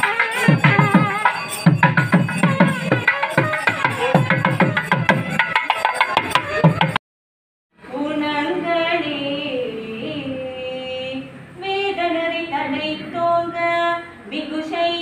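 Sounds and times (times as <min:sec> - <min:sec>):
woman singing unaccompanied: 0:07.8 - 0:15.0.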